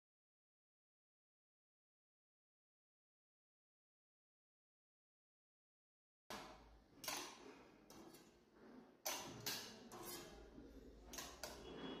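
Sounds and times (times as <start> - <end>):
knives scraping on magnetic strip: 9.1 - 10.5.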